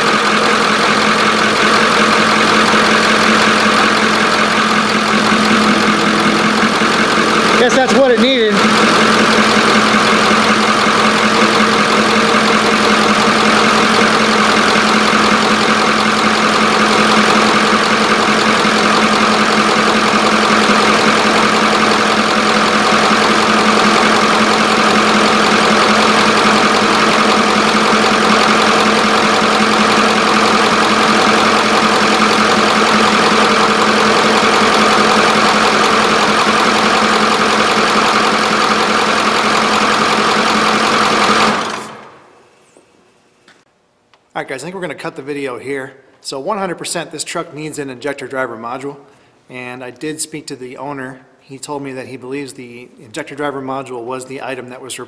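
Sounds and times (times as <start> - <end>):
diesel engine idling: 0.0 - 42.3.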